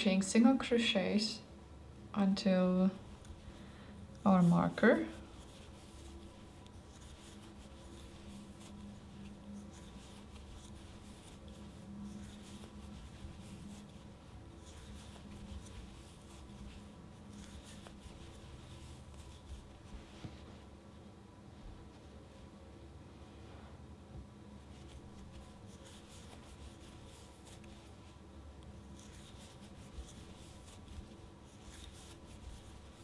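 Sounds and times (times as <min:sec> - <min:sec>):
low steady hum: 0:00.0 - 0:33.0
yarn rustling and scratching: 0:02.9 - 0:20.8, 0:24.6 - 0:33.0.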